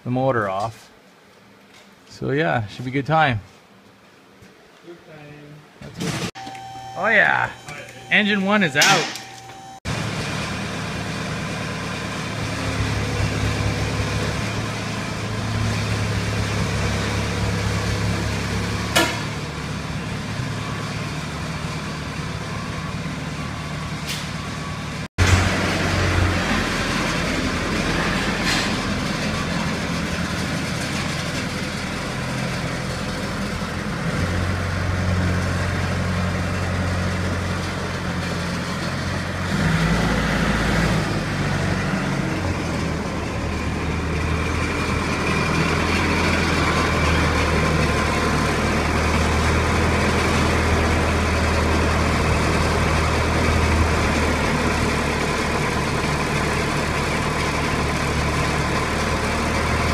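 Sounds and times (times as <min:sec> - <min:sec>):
tractor engine running: 0:08.0 - 0:59.9.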